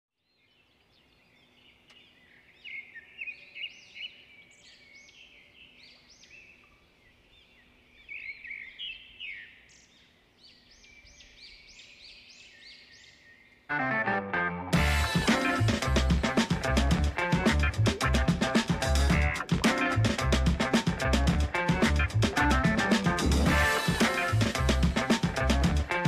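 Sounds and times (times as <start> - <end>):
small birds chirping and twittering: 0.2 - 13.7.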